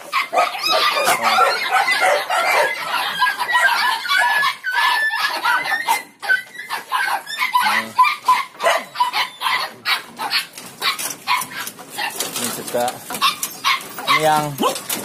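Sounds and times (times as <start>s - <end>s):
dogs high whines: 0.0s - 12.5s, 13.1s - 15.0s
dogs barking and yelping: 0.0s - 15.0s.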